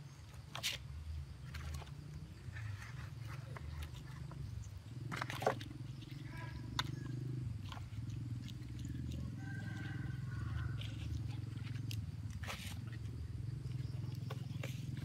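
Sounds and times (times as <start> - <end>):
low pulsing rumble: 0.9 - 15.0.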